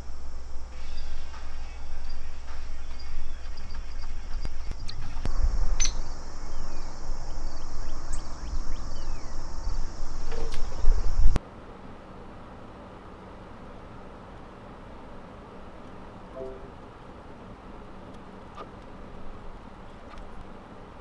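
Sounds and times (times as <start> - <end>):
high-pitched insect chorus: 0.0 - 11.4.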